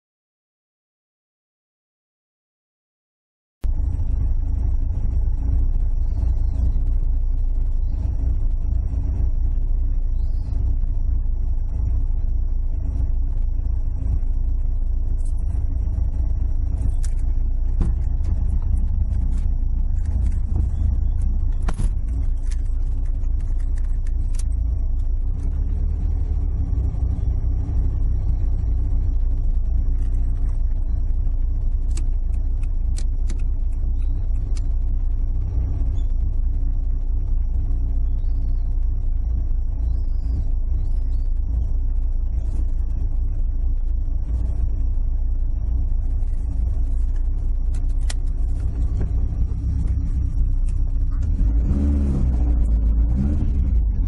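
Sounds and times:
car engine idling: 3.6 - 54.0.

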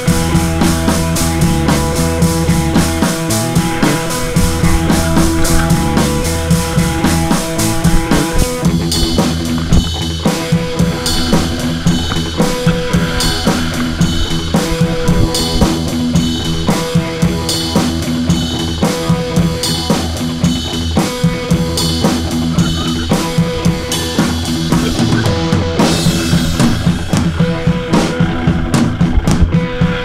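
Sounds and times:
sustained instrument notes: 0.0 - 18.7
drum kit beat: 0.0 - 30.0.

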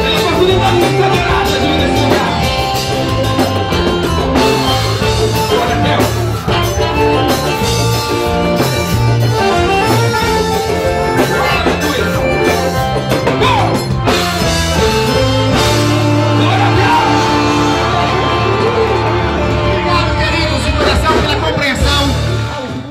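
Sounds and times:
accordion: 0.0 - 21.5
bass guitar: 0.0 - 22.9
drum kit: 0.0 - 22.9
electric guitars: 0.0 - 22.9.

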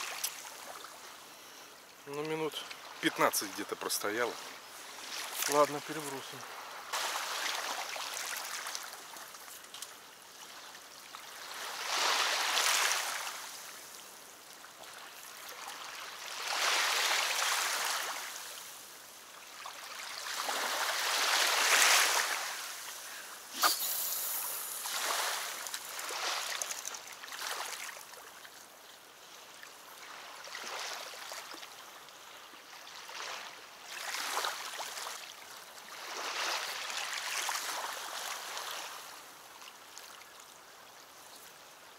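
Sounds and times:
small waves lapping shore: 0.0 - 41.9
fishing rod cast click: 23.6 - 24.6.

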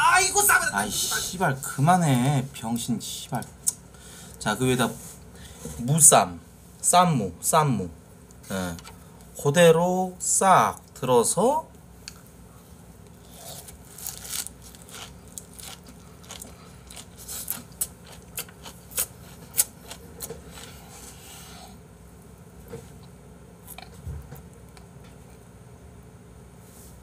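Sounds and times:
wet chewing with crunches: 13.2 - 21.2.

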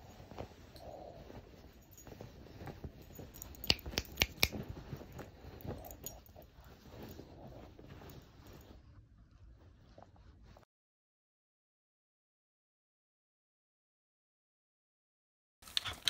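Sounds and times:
bedding rustling: 0.0 - 10.6.

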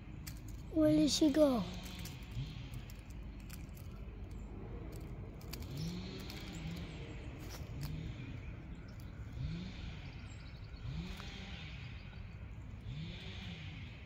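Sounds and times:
low vehicle rumble: 0.0 - 14.0
light clicks and rattles: 0.2 - 9.3.

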